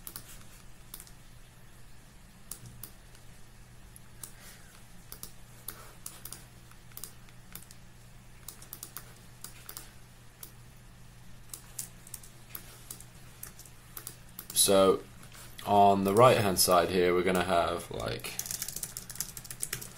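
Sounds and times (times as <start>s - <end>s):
keyboard typing: 0.0s - 1.2s, 4.2s - 7.8s, 8.4s - 10.6s, 11.5s - 14.6s, 18.4s - 19.9s
low steady hum: 0.0s - 19.9s.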